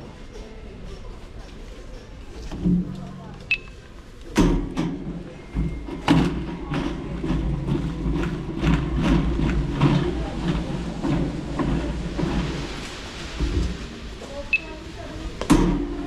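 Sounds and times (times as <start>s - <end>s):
trolley wheels rumbling: 0.0s - 16.0s
trolley basket rattling: 5.1s - 14.6s.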